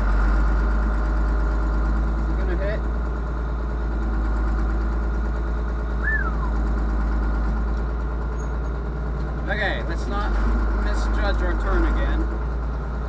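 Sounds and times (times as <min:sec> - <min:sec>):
tractor engine running under load: 0:00.0 - 0:13.0
short falling whistle: 0:06.0 - 0:06.6.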